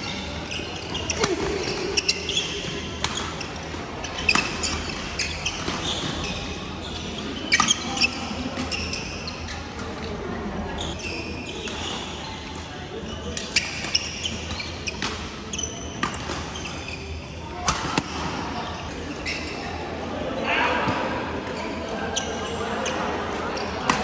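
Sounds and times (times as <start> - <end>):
shoes squeaking on wooden court: 0.0 - 10.1, 10.8 - 19.8, 20.8 - 24.0
rackets hitting shuttlecock: 1.1 - 6.5, 16.0 - 16.7, 17.6 - 18.4, 23.3 - 24.0.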